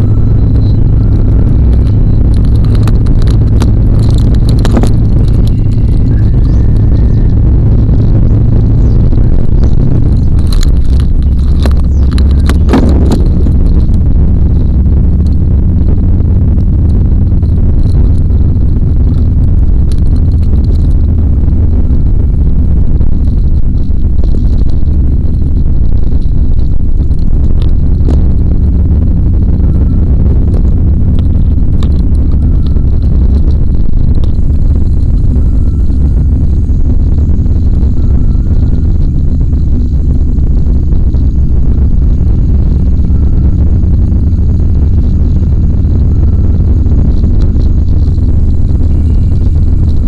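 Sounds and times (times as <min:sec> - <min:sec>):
car road noise rumble: 0:00.0 - 0:50.0.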